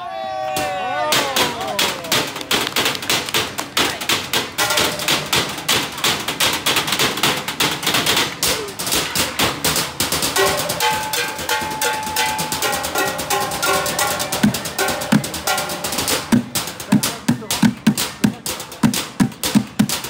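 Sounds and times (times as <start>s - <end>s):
drumming on metal trash cans: 1.1s - 20.0s.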